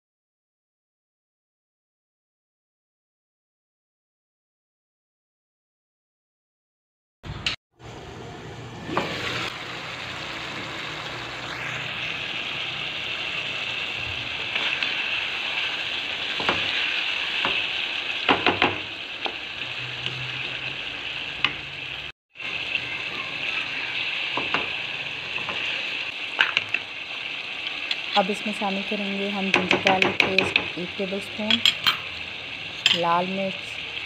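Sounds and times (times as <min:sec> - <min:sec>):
chicken frying in oil: 0:08.9 - 0:34.0
spatula scraping a pan: 0:14.4 - 0:17.8.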